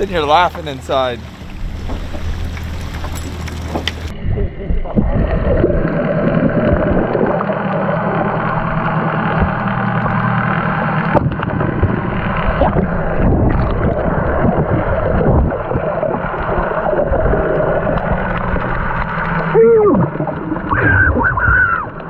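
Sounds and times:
muffled outboard engine underwater: 0:00.0 - 0:22.0.

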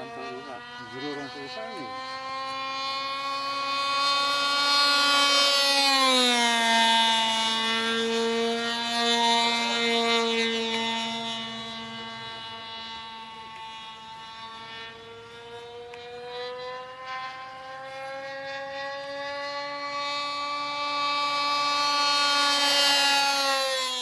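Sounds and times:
model aircraft engine: 0:00.0 - 0:24.0.

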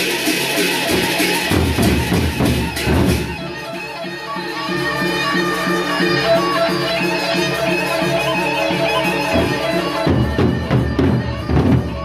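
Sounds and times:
heavy barrel drum beats: 0:00.0 - 0:03.8, 0:09.3 - 0:12.0
pitched melody: 0:00.9 - 0:12.0.

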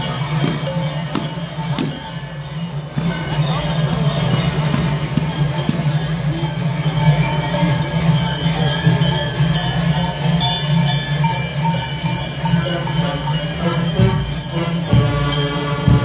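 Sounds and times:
large bells jangling: 0:00.0 - 0:16.0
brass band music: 0:12.6 - 0:16.0.

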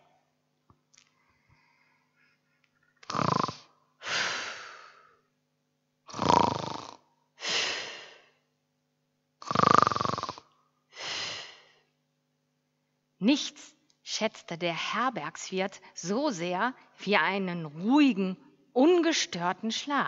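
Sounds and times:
breathy out-breath: 0:01.1 - 0:02.6, 0:03.5 - 0:05.2, 0:07.4 - 0:08.4, 0:10.9 - 0:11.9
person snoring: 0:03.0 - 0:05.1, 0:06.1 - 0:08.2, 0:09.4 - 0:11.6.

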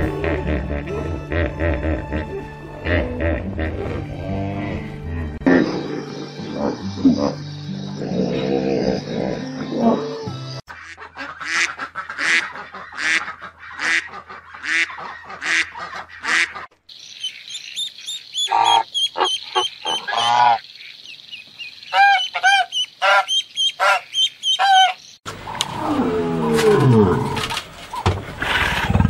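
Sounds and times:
swans calling: 0:09.6 - 0:25.7
swan nasal honks: 0:21.9 - 0:25.0
lion roaring: 0:25.5 - 0:27.6.

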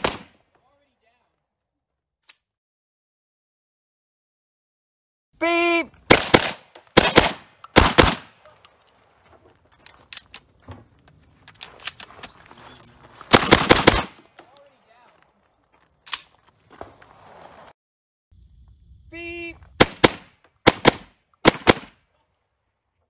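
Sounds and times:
shotgun shots: 0:00.0 - 0:00.4, 0:06.1 - 0:08.5, 0:13.3 - 0:14.2, 0:19.8 - 0:22.0
shells loaded by hand clicking: 0:02.2 - 0:02.5, 0:09.8 - 0:10.5, 0:11.4 - 0:12.4.

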